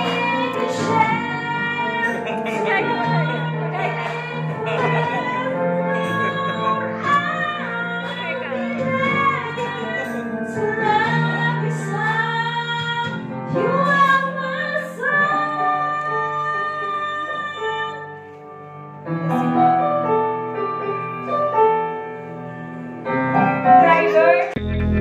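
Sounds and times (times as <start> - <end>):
woman singing into microphone: 0.0 - 18.2, 23.6 - 24.6
backing track with piano: 0.0 - 25.0.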